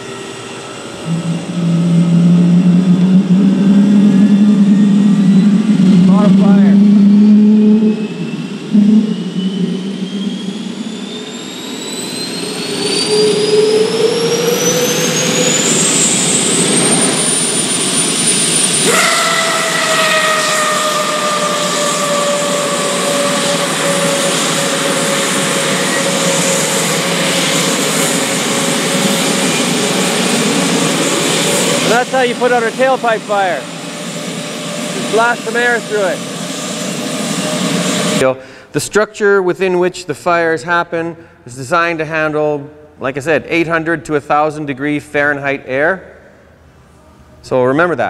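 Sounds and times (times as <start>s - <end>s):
lower whine falling in pitch: 0.0s - 38.3s
turbofan engine whine rising: 0.0s - 47.6s.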